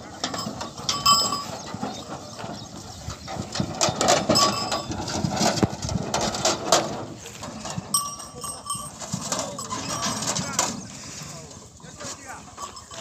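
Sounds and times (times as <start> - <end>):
cart with stones rattling: 0.0 - 13.0
short ring: 0.3 - 1.7, 4.2 - 5.0, 7.8 - 10.8, 12.5 - 13.0.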